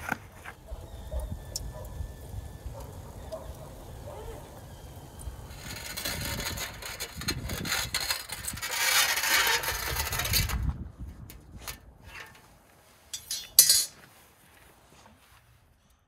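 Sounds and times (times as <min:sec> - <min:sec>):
rubbing and scraping: 0:05.5 - 0:15.3.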